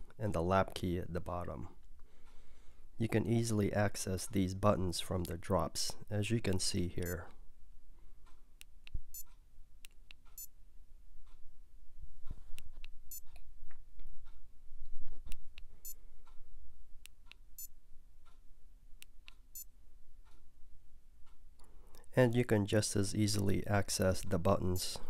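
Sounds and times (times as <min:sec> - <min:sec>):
short high-pitched beeps: 0:13.1 - 0:13.3.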